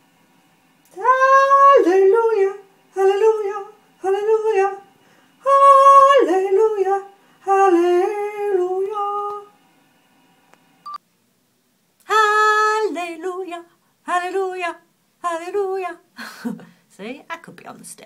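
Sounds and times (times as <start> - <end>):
woman singing without words: 0.9 - 9.6, 12.0 - 16.6.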